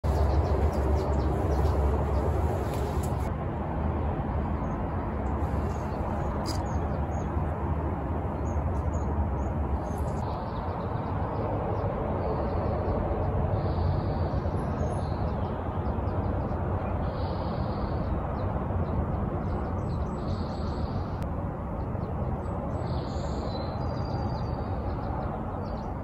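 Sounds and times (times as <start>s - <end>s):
small birds chirping: 0.0s - 3.3s, 5.4s - 7.4s
low background rumble: 0.0s - 25.9s.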